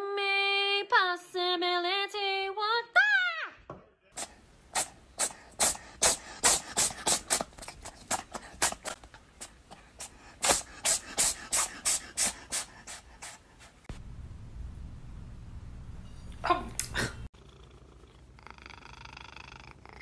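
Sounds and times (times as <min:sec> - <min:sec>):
cat rasping at hair: 0:04.2 - 0:13.9.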